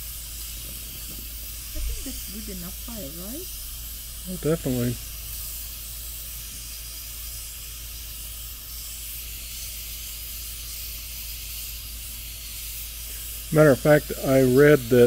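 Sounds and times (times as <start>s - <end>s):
pressure cooker hissing: 0.0s - 15.0s.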